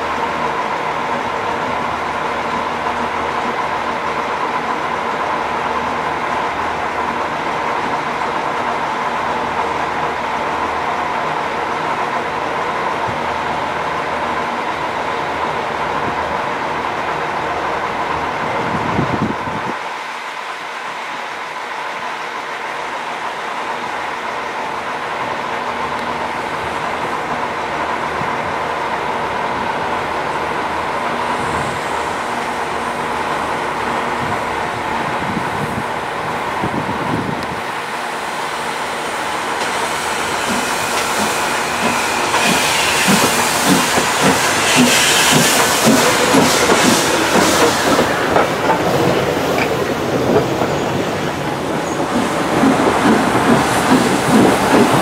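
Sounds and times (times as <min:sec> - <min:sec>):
steam hissing: 0:37.6 - 0:55.0
train wheels clacking over rail joints: 0:39.4 - 0:55.0.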